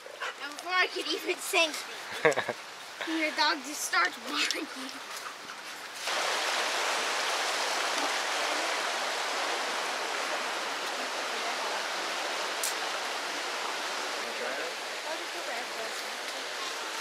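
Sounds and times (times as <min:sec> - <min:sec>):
waterfall rushing water: 0:06.0 - 0:17.0.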